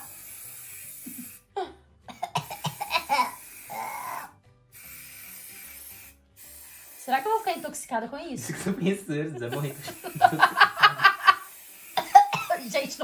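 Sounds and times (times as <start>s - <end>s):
aerosol hairspray hiss: 0.0s - 1.4s, 2.5s - 7.9s, 9.5s - 13.0s
light background music: 0.0s - 13.0s
woman laughing and coughing: 9.4s - 13.0s.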